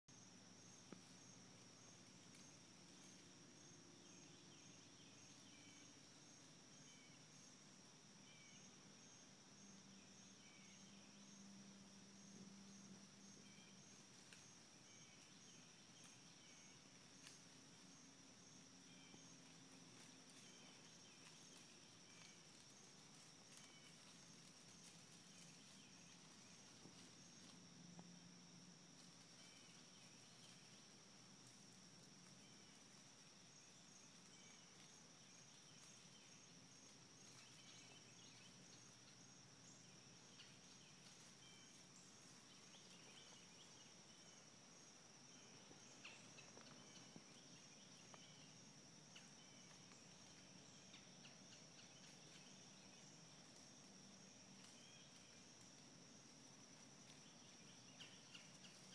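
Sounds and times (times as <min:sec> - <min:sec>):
regular chirping: 0:39.7 - 0:53.5.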